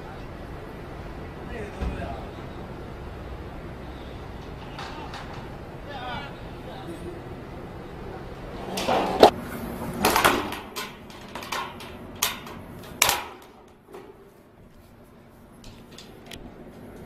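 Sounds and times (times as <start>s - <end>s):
metallic knocks and clinks: 10.0s - 14.2s.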